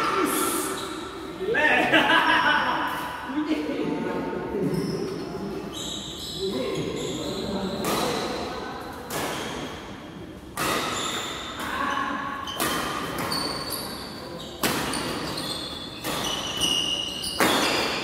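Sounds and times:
shoe squeaks on court floor: 0:04.6 - 0:08.4, 0:09.2 - 0:09.8, 0:10.8 - 0:11.6, 0:12.4 - 0:18.0
rackets hitting shuttlecocks: 0:07.8 - 0:08.4, 0:10.4 - 0:11.8, 0:14.6 - 0:15.4, 0:16.0 - 0:18.0.

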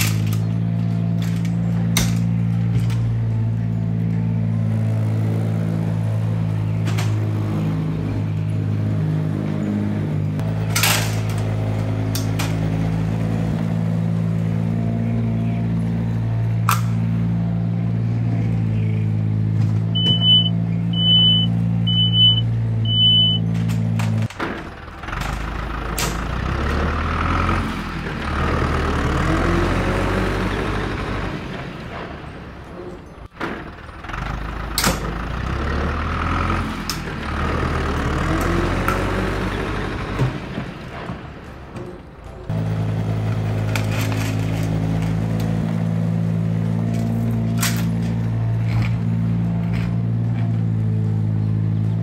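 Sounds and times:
tractor engine idling: 0:00.0 - 0:52.0
reversing beeper: 0:19.9 - 0:23.6.

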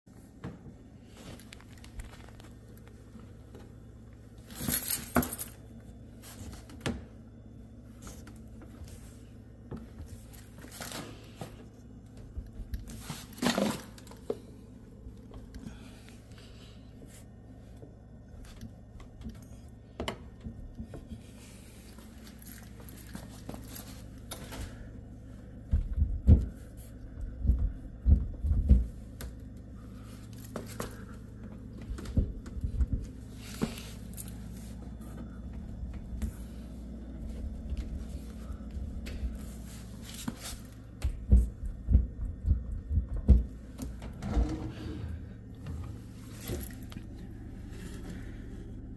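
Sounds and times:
hand rubbing and knocking on cabinets: 0:25.6 - 0:29.3, 0:30.6 - 0:47.2.

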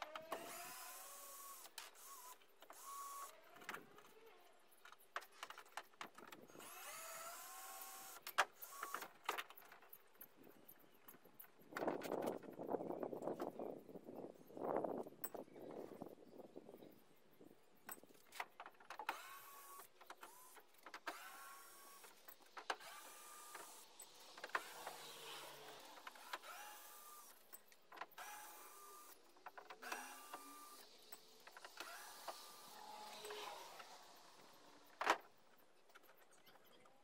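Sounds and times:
cordless drill whirring: 0:00.0 - 0:03.4, 0:06.5 - 0:09.1, 0:19.0 - 0:35.2.

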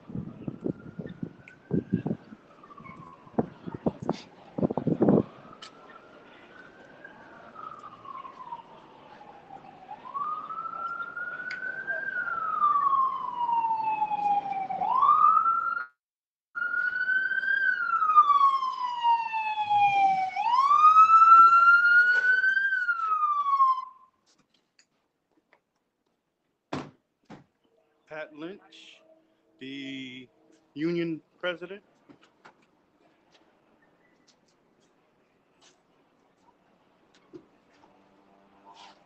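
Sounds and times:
police siren wailing: 0:00.0 - 0:16.0, 0:16.6 - 0:24.2.

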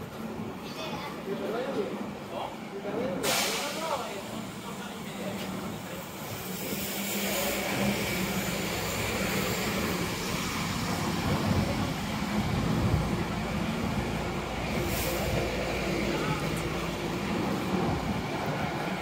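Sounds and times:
short hiss: 0:03.2 - 0:04.1.

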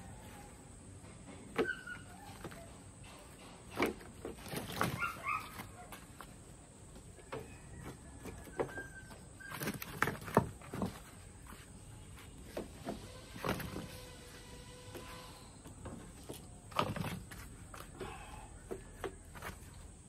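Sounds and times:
hollow wooden knocks and clatters: 0:07.0 - 0:11.2.

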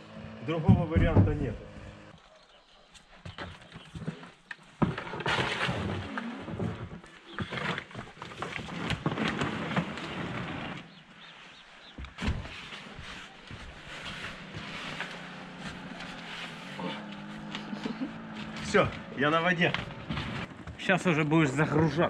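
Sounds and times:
heavy thump: 0:00.7 - 0:01.6
boat knocking and scraping on ice: 0:03.3 - 0:11.2, 0:11.8 - 0:22.0.

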